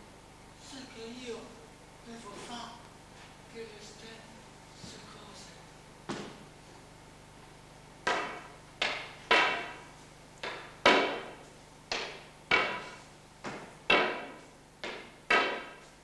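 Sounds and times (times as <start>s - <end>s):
sharp knocks on a wall: 8.0s - 15.9s.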